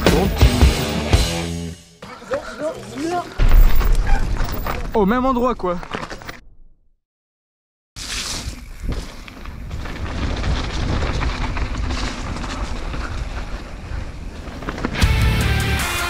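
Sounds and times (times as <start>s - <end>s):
electric guitar metal music: 0.0s - 1.9s, 15.0s - 16.0s
bike rattling and knocking: 8.9s - 15.2s.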